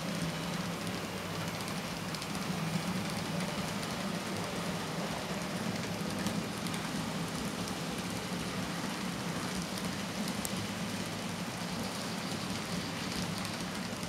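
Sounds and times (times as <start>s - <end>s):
model train wheels rattling: 0.0s - 14.0s.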